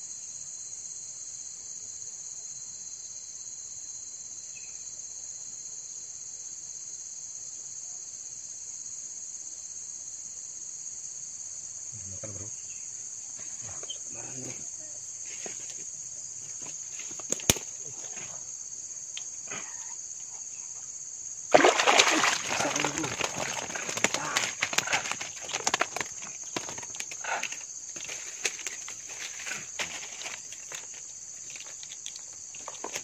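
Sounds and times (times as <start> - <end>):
insect chorus drone: 0.0 - 33.0
faint rustles: 22.7 - 33.0.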